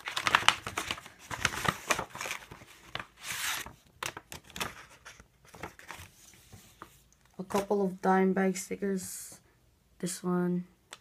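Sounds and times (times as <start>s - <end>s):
paper rustling and crinkling: 0.0s - 7.8s.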